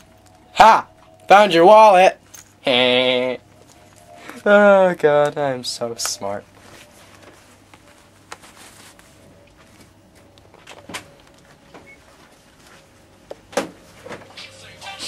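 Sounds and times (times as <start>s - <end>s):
faint steady hum: 0.0s - 15.0s
rustling handling noise: 3.4s - 14.3s.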